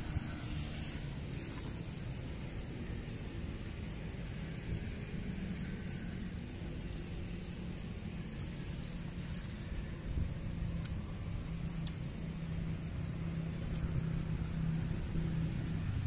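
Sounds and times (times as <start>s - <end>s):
low droning engine rumble: 0.0s - 16.0s
faint sharp ticks: 8.3s - 8.6s, 10.7s - 11.0s, 13.7s - 13.9s.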